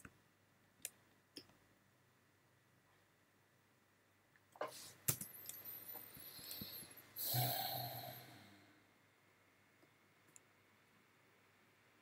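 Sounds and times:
person sighing: 6.4s - 8.7s.

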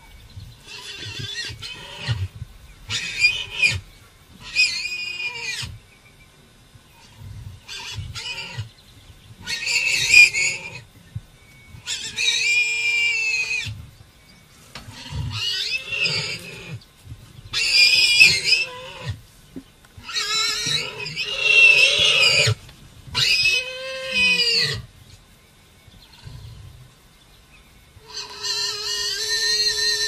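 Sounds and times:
warthog squealing: 9.4s - 10.8s, 14.9s - 16.8s, 17.6s - 19.2s, 20.0s - 22.6s, 23.2s - 24.8s, 28.1s - 30.0s.

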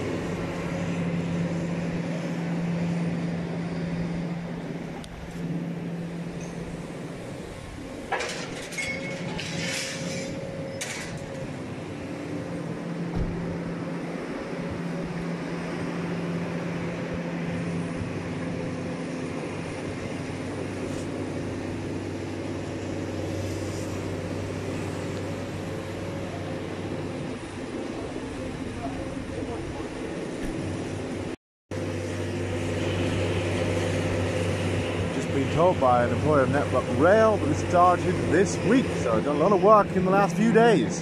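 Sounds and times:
excavator diesel engines running: 0.0s - 41.0s
clattering and scraping: 8.1s - 11.4s
thump: 13.1s - 13.4s.

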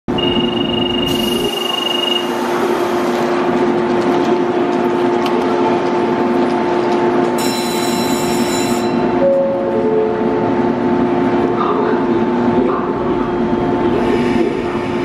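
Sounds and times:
steady high beep: 0.1s - 2.5s
electric train humming: 0.1s - 15.0s.

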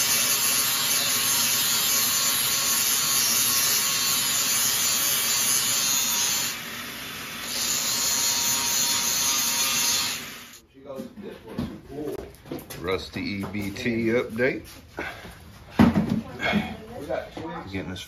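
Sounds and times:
power tool cutting steel: 0.0s - 10.6s.

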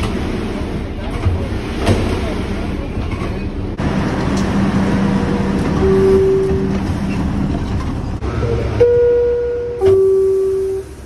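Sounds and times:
train and platform rumble: 0.0s - 11.0s
two-tone door chime: 5.8s - 6.8s, 8.8s - 10.8s.

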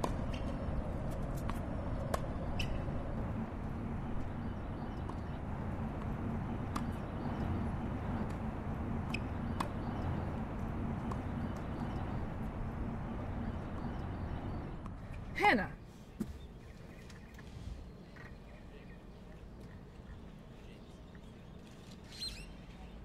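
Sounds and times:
low rumble: 0.0s - 15.3s.

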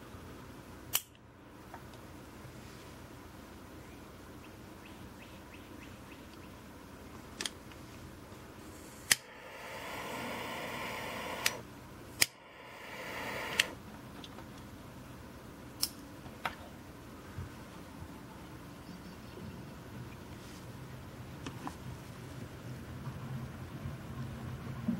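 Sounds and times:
torch lighter jet hissing: 8.7s - 13.8s
lighter trigger click: 9.1s - 11.6s, 12.2s - 13.8s.

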